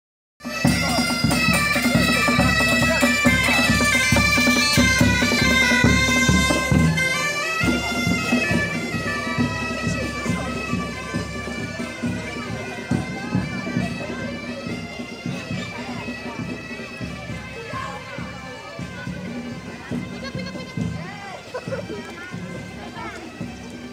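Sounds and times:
snare drum: 0.4s - 18.3s
bagpipes playing folk melody: 0.4s - 23.9s
bass drum: 0.6s - 22.7s.

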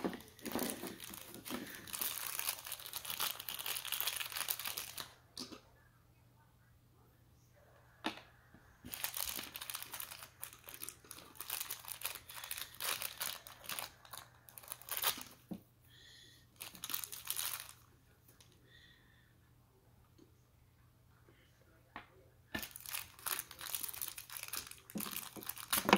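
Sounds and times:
wrapper crinkling: 0.0s - 5.2s, 8.8s - 15.4s, 16.6s - 17.8s, 22.6s - 25.9s.

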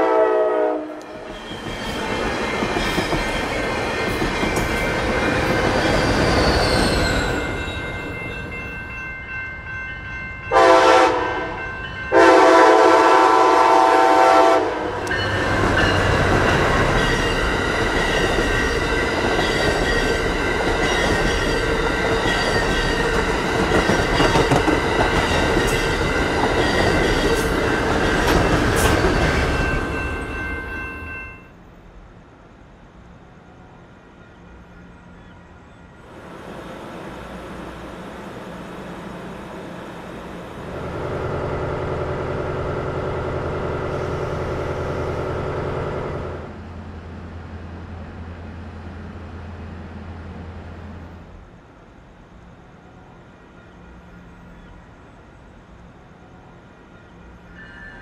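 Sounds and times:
locomotive air horn: 0.0s - 1.1s, 10.5s - 15.1s
train rumbling on rails: 0.0s - 58.0s
wheels clickety-clack: 15.2s - 30.3s.

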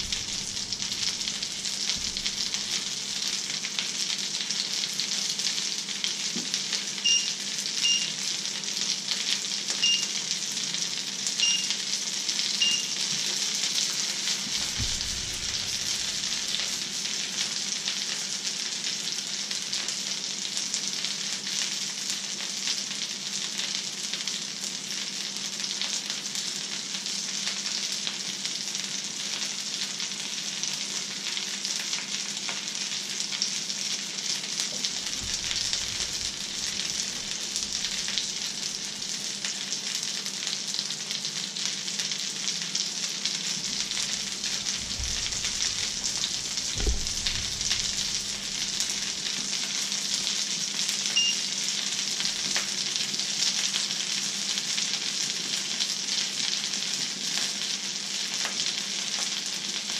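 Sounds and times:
low steady hum: 0.0s - 2.8s
food sizzling in a pan: 0.0s - 59.9s
dull low thuds: 14.6s - 16.1s, 35.1s - 36.6s, 43.9s - 49.1s.

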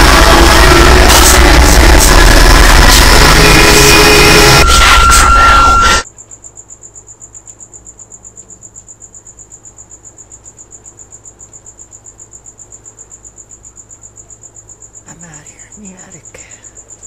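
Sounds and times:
loud noisy music: 0.0s - 6.0s
crickets chirping: 0.0s - 17.0s.

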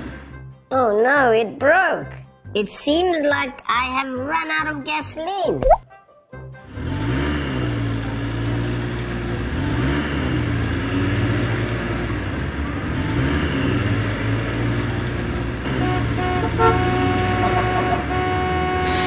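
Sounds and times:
car engine revving: 6.7s - 19.0s.

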